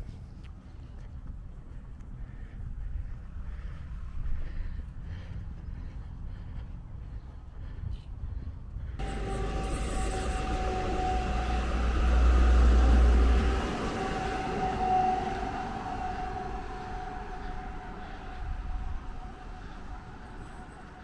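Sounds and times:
car driving past: 0:09.0 - 0:21.0
electric train passing: 0:09.0 - 0:21.0
train humming tone: 0:09.0 - 0:21.0.

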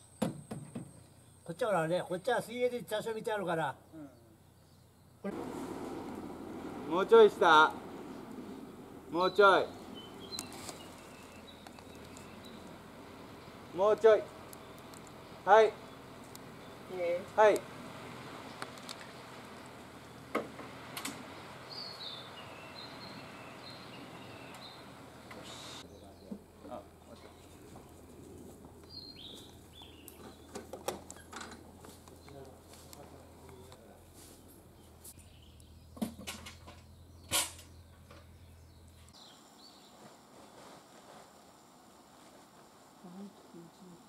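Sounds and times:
outdoor background noise: 0:00.0 - 0:44.0
high bird chirps: 0:09.1 - 0:13.7, 0:21.4 - 0:26.3.

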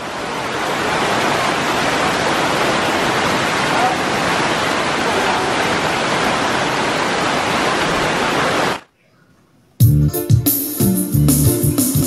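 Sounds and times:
small waterfall splashing: 0:00.0 - 0:08.9
keyboard music: 0:09.8 - 0:12.0.

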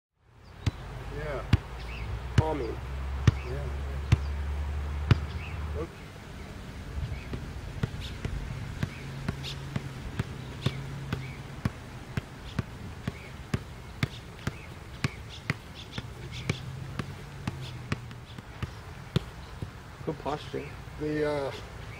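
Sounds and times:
foot kicking soccer ball: 0:03.2 - 0:04.3, 0:07.0 - 0:19.8.

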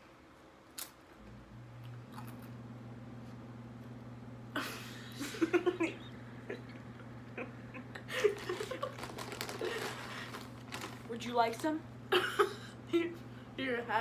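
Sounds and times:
boys giggling and laughing: 0:04.6 - 0:09.0.

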